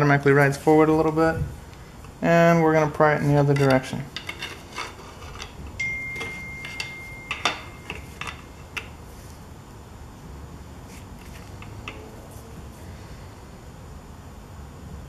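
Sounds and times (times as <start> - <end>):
thin high tone: 5.8 - 8.7.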